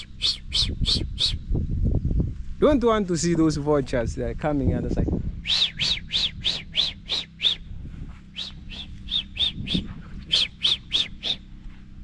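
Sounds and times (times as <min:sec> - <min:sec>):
bird calling high notes: 0:00.0 - 0:01.4, 0:05.4 - 0:07.7, 0:08.3 - 0:11.4.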